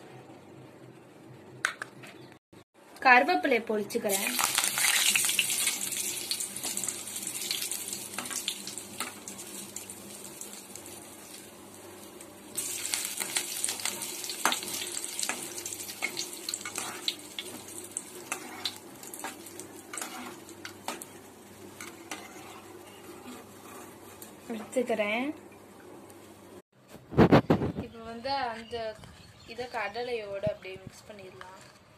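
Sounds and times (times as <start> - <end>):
leaves sizzling in hot oil: 3.9 - 25.4
ladle stirring: 12.5 - 24.5.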